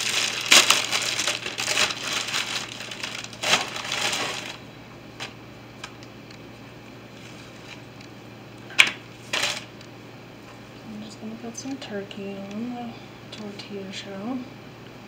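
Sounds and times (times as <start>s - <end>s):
plastic bag crinkling: 0.0s - 5.4s, 9.2s - 9.7s.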